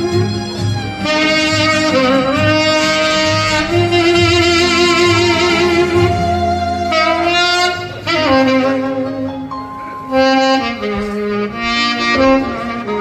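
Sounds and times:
saxophone slow melody: 0:00.0 - 0:13.0.

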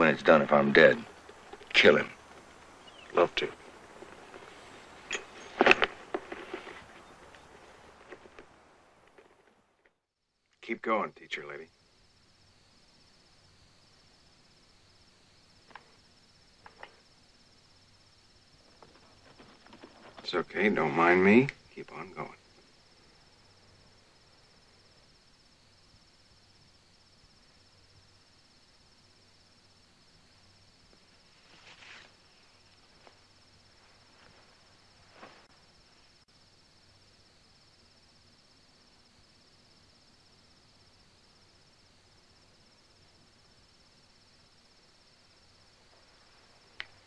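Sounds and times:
crickets chirping: 0:00.0 - 0:47.0
soft rustles: 0:01.0 - 0:09.7, 0:18.6 - 0:20.4, 0:31.2 - 0:36.2.

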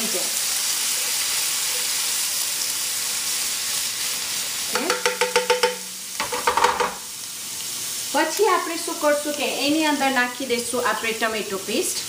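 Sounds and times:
paste sizzling in hot oil: 0:00.0 - 0:12.0
spatula scraping and tapping pan: 0:04.7 - 0:07.0.

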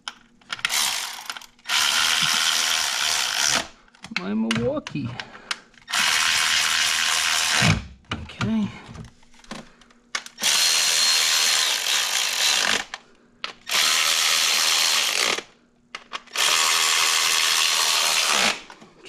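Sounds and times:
power tool running: 0:00.6 - 0:03.7, 0:05.9 - 0:07.8, 0:10.4 - 0:13.0, 0:13.6 - 0:15.5, 0:16.3 - 0:18.7.

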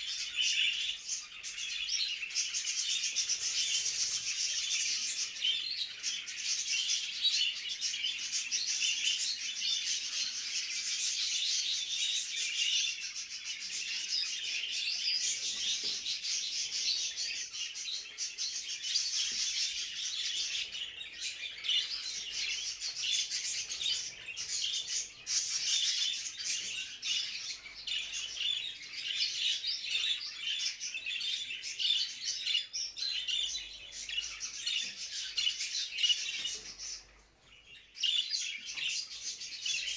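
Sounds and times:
budgerigars chattering and warbling: 0:00.0 - 0:39.9.

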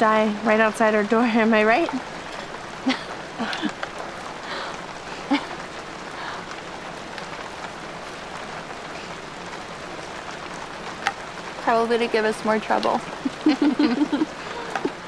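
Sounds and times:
steady rain falling: 0:00.0 - 0:15.0
person chuckling: 0:02.8 - 0:03.9, 0:04.5 - 0:05.7, 0:13.2 - 0:15.0.

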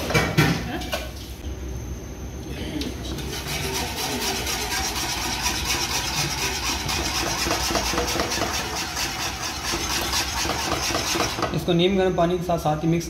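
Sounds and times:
whisk scraping a metal pan: 0:03.1 - 0:11.6.

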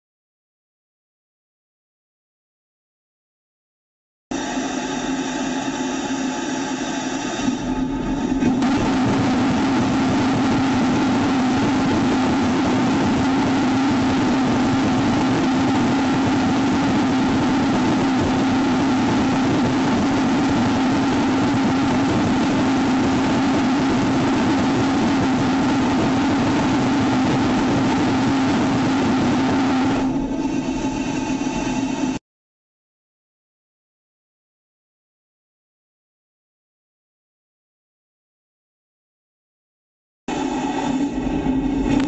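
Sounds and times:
low drone: 0:04.3 - 0:32.2, 0:40.3 - 0:42.0
rocket exhaust roar: 0:04.3 - 0:32.2, 0:40.3 - 0:42.0.

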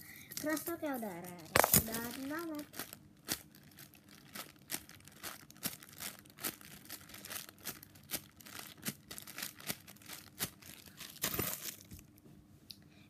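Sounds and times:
plastic bag crinkling: 0:00.4 - 0:12.2.

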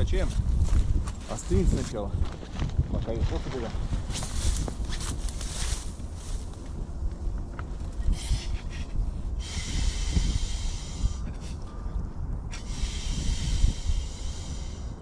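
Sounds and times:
wind rumble on microphone: 0:00.0 - 0:15.0
air hissing through valve: 0:09.4 - 0:11.3, 0:12.5 - 0:15.0.

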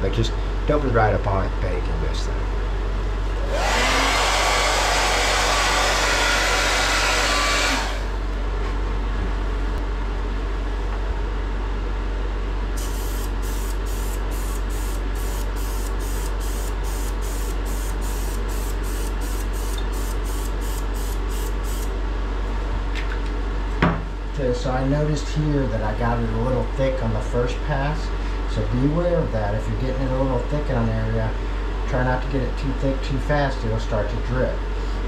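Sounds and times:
hair dryer blowing: 0:03.4 - 0:08.3
sprayer hissing in short bursts: 0:12.8 - 0:21.9.

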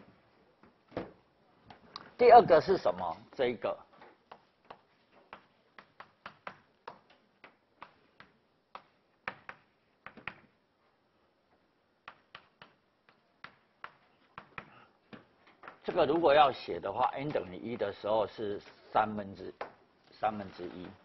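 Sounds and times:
chalk tapping and scraping: 0:04.0 - 0:10.5, 0:12.0 - 0:16.3.

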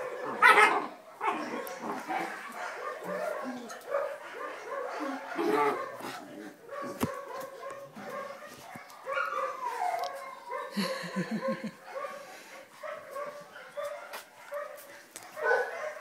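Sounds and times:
puppies yapping: 0:00.0 - 0:12.1
puppies whining and whimpering: 0:09.2 - 0:10.6.

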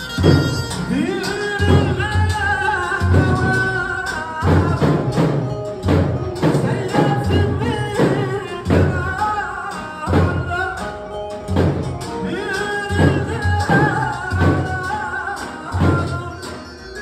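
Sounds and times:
heavy drum beat: 0:00.0 - 0:16.8
electronic keyboard: 0:00.0 - 0:17.0
man singing through a microphone: 0:00.0 - 0:17.0.

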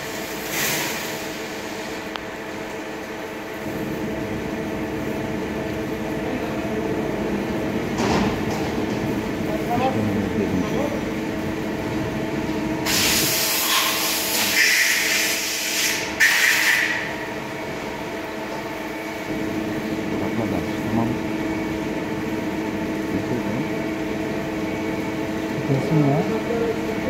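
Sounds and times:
loud hiss: 0:12.8 - 0:17.0.

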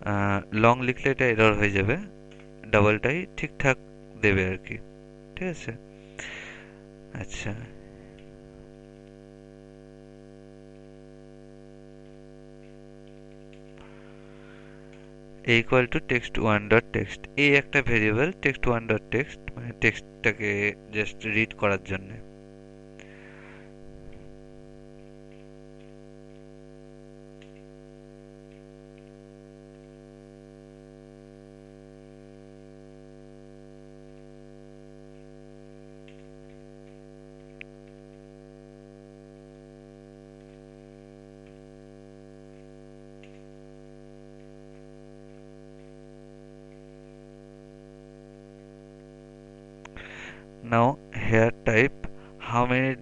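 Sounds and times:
electrical mains hum: 0:00.0 - 0:53.0
computer keyboard typing: 0:27.4 - 0:27.7, 0:36.0 - 0:38.1, 0:42.5 - 0:43.5.

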